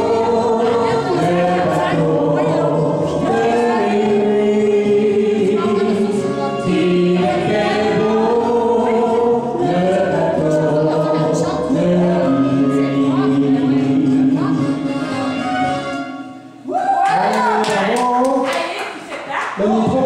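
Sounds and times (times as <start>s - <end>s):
man and woman singing duet: 0.0s - 15.9s
karaoke backing track: 0.0s - 20.0s.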